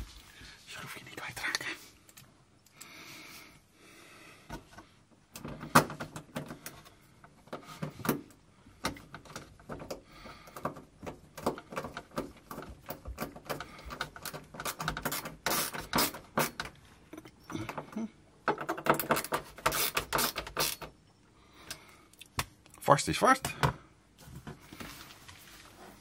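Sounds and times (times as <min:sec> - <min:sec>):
screwdriver clicking and scraping: 0:11.4 - 0:16.7, 0:18.7 - 0:20.9.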